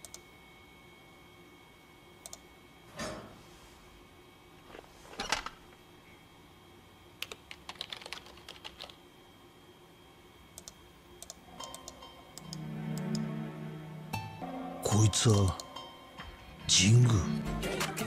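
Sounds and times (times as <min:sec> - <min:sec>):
computer keyboard typing: 0:07.2 - 0:09.0, 0:10.6 - 0:12.5.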